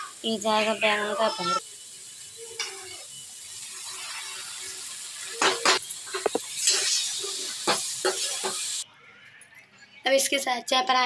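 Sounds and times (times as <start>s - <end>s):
masala sizzling in a pan: 0.0s - 8.8s
steel spoon scraping a pan: 2.4s - 8.8s.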